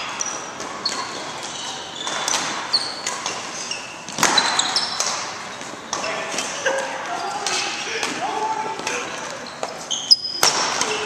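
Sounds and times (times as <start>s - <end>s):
rackets striking shuttlecock: 0.0s - 6.5s, 9.6s - 11.0s
shoes squeaking on court: 0.0s - 7.8s, 8.6s - 11.0s.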